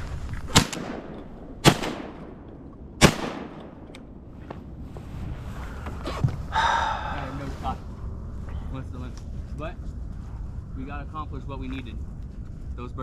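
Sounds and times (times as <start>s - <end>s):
shotgun shots with echo: 0.5s - 2.4s, 3.0s - 3.8s.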